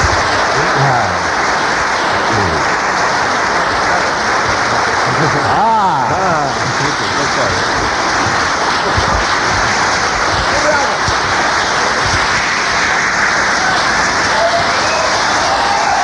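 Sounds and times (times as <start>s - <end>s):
audience applauding: 0.0s - 16.0s
voices calling out: 0.4s - 1.3s, 2.3s - 2.7s.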